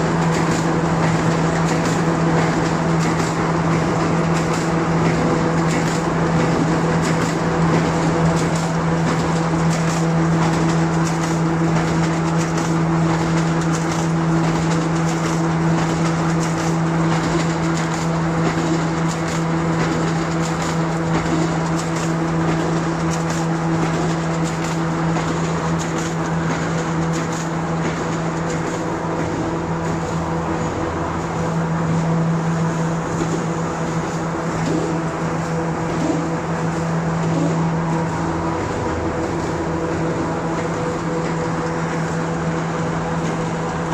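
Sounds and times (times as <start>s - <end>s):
printing machine humming: 0.0s - 43.9s.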